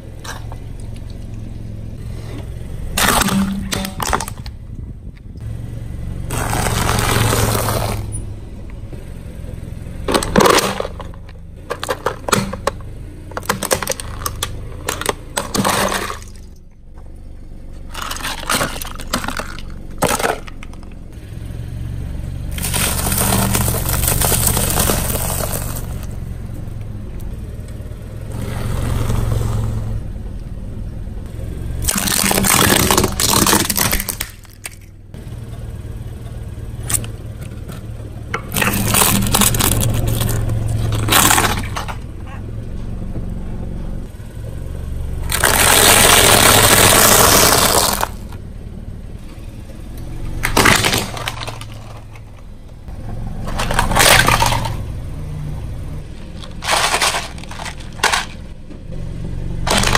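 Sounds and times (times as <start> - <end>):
car tyre crushing crunchy food: 0.0 - 4.6, 6.2 - 8.1, 10.0 - 21.2, 22.4 - 26.4, 31.6 - 35.0, 36.7 - 42.5, 45.2 - 48.4, 50.0 - 58.7, 59.6 - 59.9
car engine humming: 0.0 - 59.9.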